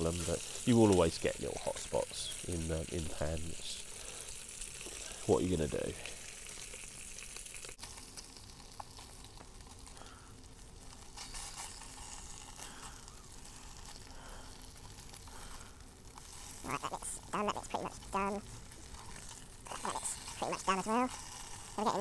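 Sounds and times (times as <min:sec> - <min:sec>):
bacon sizzling in a frying pan: 0:00.0 - 0:22.0
spatula moving food in pan: 0:10.8 - 0:22.0.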